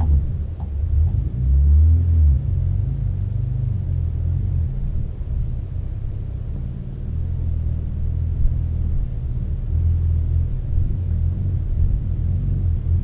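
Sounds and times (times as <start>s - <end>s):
vehicle engine rumbling: 0.0s - 13.0s.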